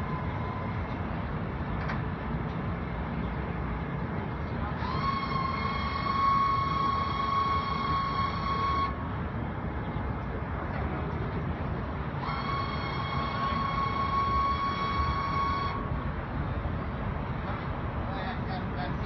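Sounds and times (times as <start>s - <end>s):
low mechanical rumble: 0.0s - 19.0s
high whine with overtones: 4.8s - 9.1s, 12.2s - 16.0s.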